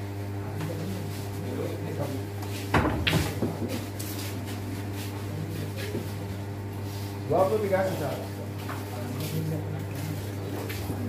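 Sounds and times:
low electrical hum: 0:00.0 - 0:11.0
faint voices: 0:03.3 - 0:11.0.

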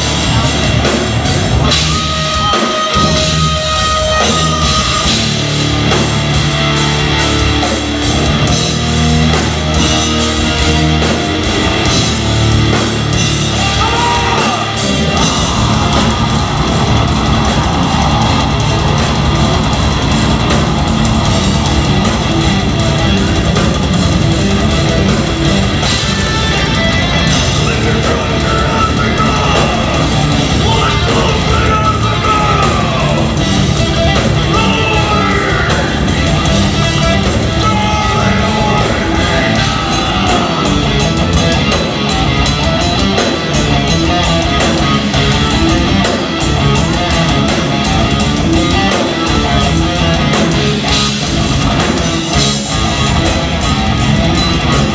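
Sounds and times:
metal band playing: 0:00.0 - 0:54.9
person yelling vocals: 0:13.6 - 0:18.7, 0:27.6 - 0:33.4, 0:34.4 - 0:36.1, 0:37.4 - 0:41.0.

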